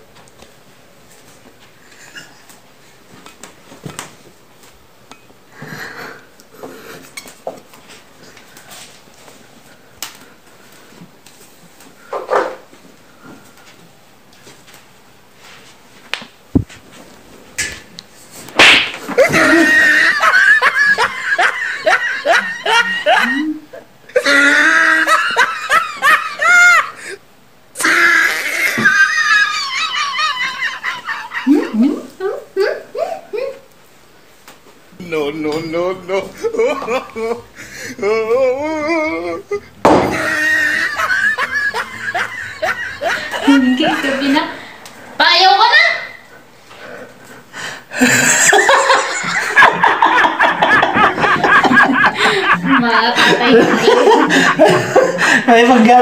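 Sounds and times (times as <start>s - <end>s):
person shrieking laughter: 19.1s - 27.2s, 27.8s - 33.6s, 36.4s - 44.4s.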